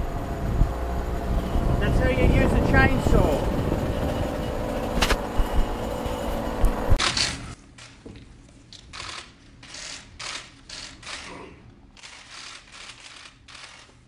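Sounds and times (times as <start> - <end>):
camera shutters clicking: 8.9 - 11.4, 12.0 - 14.0.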